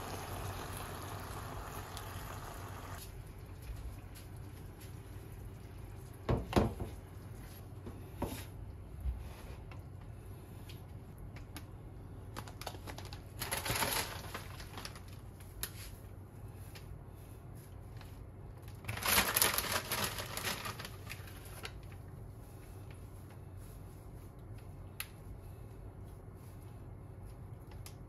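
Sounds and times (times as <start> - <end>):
plastic bag crinkling: 12.3 - 15.8, 18.6 - 22.1.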